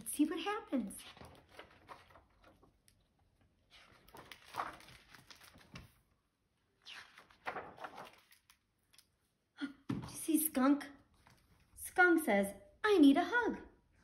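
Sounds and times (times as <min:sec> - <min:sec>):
book pages turning: 0:00.2 - 0:06.1, 0:06.7 - 0:09.1.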